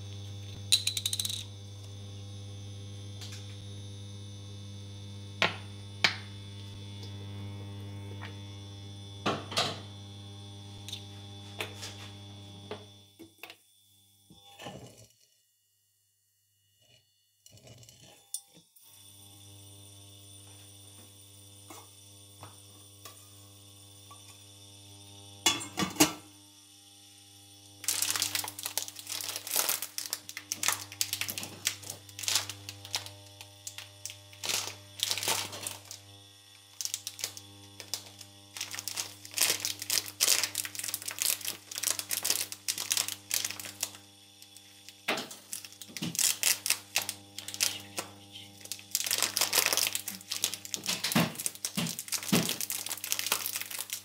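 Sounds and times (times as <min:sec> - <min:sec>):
electrical hum: 0:00.0 - 0:15.1, 0:16.8 - 0:54.0
plastic bag crinkling: 0:27.8 - 0:36.0, 0:36.7 - 0:54.0.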